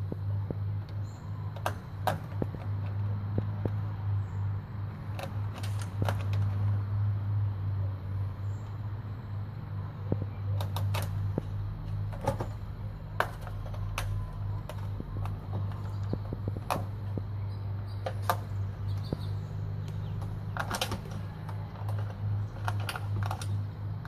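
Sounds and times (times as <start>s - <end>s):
screen door rattling: 1.0s - 6.9s, 9.8s - 24.0s
cat claws scraping screen mesh: 1.3s - 6.8s, 10.5s - 17.2s, 17.8s - 24.0s.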